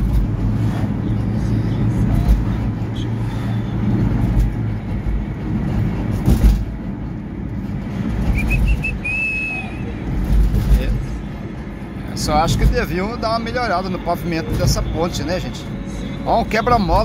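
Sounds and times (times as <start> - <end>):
car road and engine rumble: 0.0 - 17.0
thump: 6.2 - 6.7.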